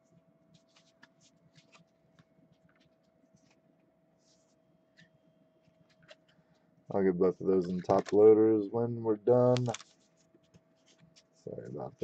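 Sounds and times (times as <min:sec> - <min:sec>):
faint steady hum: 0:00.0 - 0:12.0
trading cards rustling: 0:00.6 - 0:01.9, 0:07.4 - 0:08.3, 0:09.3 - 0:11.4.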